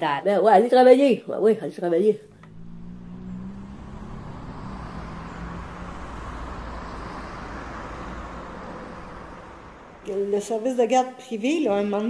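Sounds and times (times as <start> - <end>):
low engine note: 2.2 - 10.1
cars driving by: 2.2 - 10.6.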